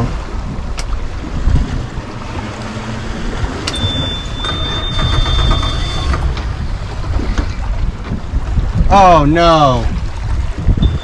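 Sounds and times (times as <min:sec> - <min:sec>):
outboard motor rumble: 0:00.0 - 0:11.0
steady high beep: 0:03.7 - 0:06.1.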